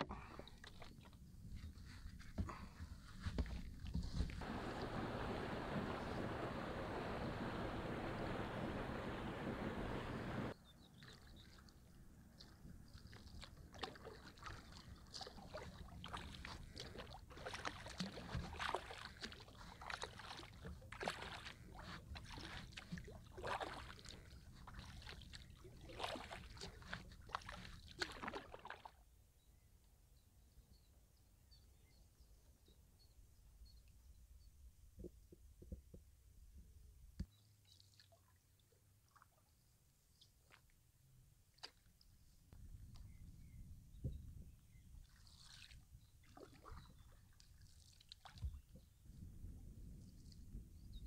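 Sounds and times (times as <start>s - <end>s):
paddle splashing in water: 1.8s - 11.8s, 12.4s - 29.0s, 45.0s - 48.7s
steady rushing noise: 4.4s - 10.5s.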